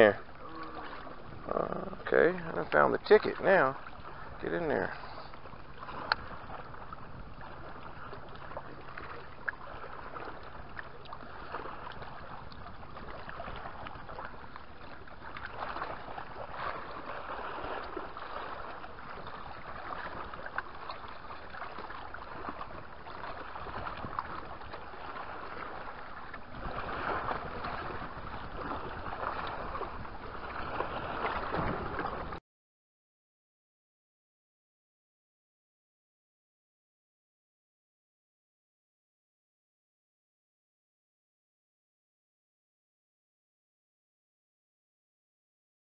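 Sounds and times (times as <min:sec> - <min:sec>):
water lapping on rocks: 0:00.0 - 0:32.4
wind: 0:00.0 - 0:32.4.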